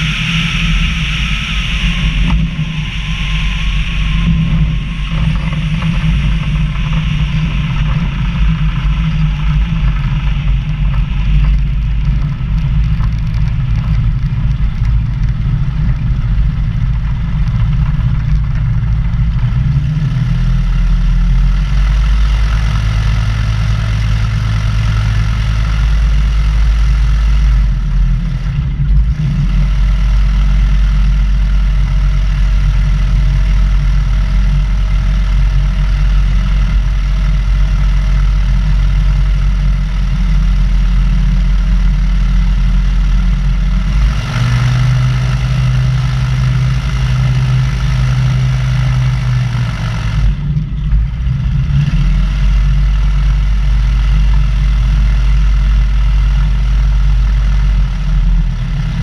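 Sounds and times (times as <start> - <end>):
wind rushing over microphone: 0.0 - 20.7
light aircraft engine and propeller: 0.0 - 59.0.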